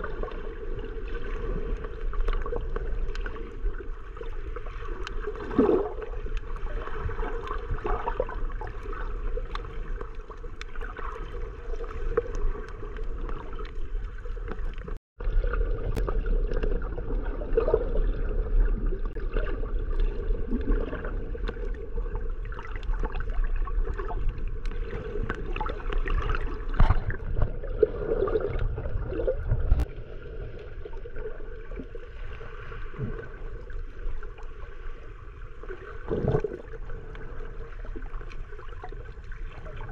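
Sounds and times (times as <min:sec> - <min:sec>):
underwater water rush and gurgling: 0:00.0 - 0:39.9
faint underwater clicks: 0:01.3 - 0:15.0, 0:19.1 - 0:27.6.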